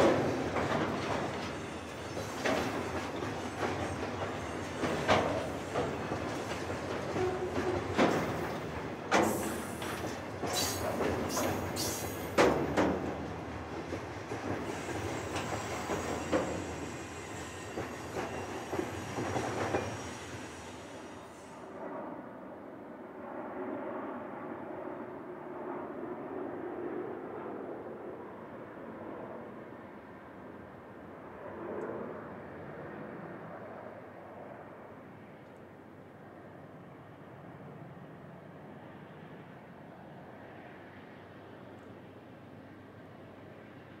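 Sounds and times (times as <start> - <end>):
freight wagons rolling on rails: 0.0 - 20.0
high wheel squeals: 14.7 - 21.5.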